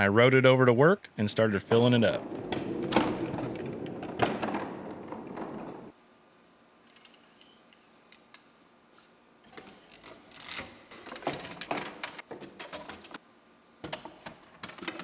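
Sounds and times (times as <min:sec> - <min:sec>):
cart rolling on concrete: 0:01.7 - 0:05.9.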